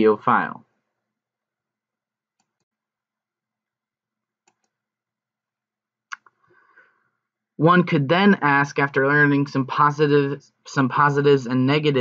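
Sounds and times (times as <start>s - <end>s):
computer mouse clicks: 4.4s - 4.8s.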